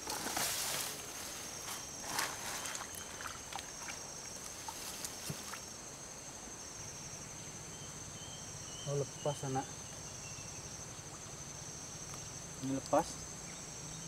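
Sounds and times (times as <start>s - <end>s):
hands rustling through wet grass: 0.0s - 5.7s
insects trilling: 0.0s - 14.0s
sloshing in muddy water: 2.0s - 5.7s.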